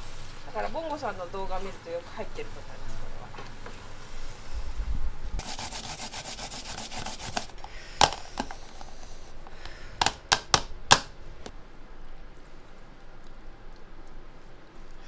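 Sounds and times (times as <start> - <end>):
ginger grating on metal grater: 5.4 - 7.6.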